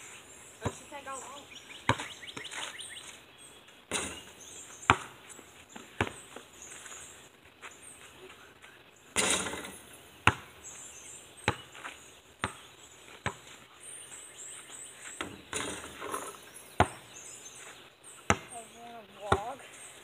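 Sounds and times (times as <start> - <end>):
birds chirping: 0.0 - 20.0
basketball bouncing on hard ground: 0.6 - 1.1, 1.8 - 2.8, 3.9 - 6.5, 9.2 - 10.6, 11.4 - 13.6, 15.1 - 17.1, 18.2 - 19.6.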